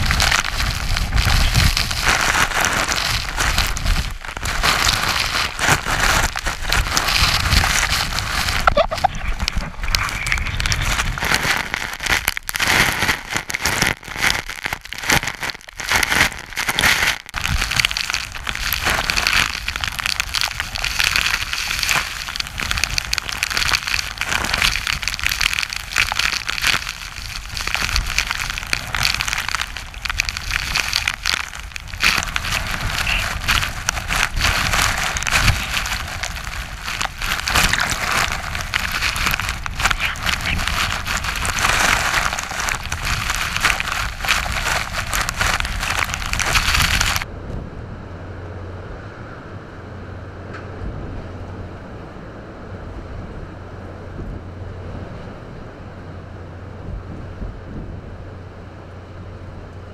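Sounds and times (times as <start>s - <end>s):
waves breaking: 0.0s - 47.2s
rain pelting camera: 0.0s - 47.3s
wind buffeting microphone: 0.0s - 59.9s.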